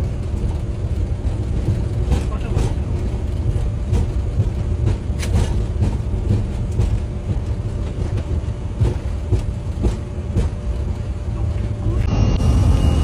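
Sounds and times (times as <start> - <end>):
jet engines rumbling at takeoff: 0.0 - 13.0.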